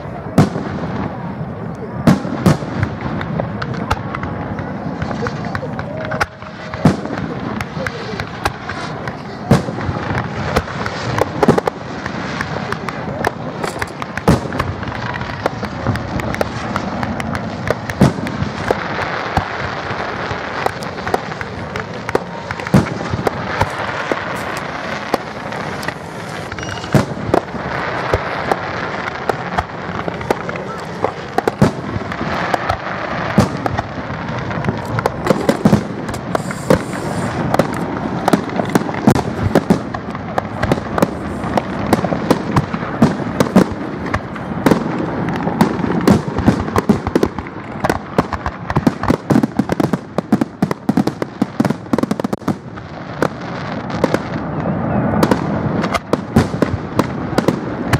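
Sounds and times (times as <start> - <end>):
fireworks bangs and pops: 0.0 - 57.9
steady wash of noise: 16.0 - 46.0.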